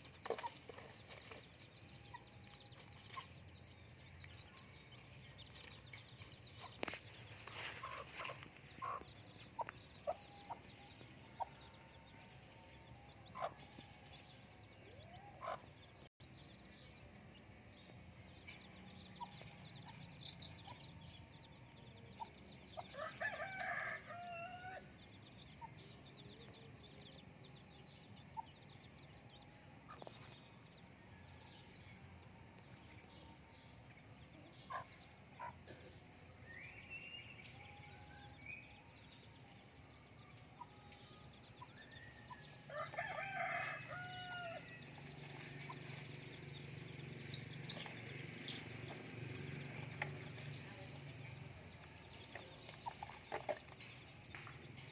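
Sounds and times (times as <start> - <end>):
chicks peeping: 0.0 - 16.6, 17.7 - 30.9, 36.8 - 54.9
hen clucking: 6.6 - 10.6
rooster crowing: 23.0 - 24.9, 42.7 - 44.8.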